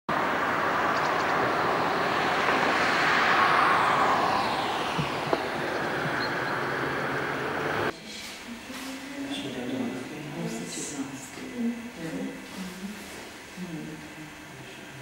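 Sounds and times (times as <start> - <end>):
vehicle passing by: 0.1 - 7.9.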